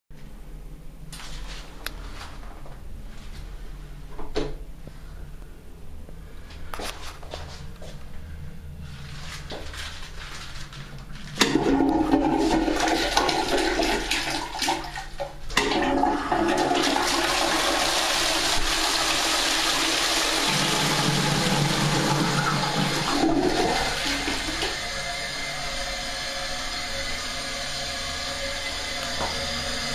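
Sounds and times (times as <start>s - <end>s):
toilet water rushing: 11.4s - 29.9s.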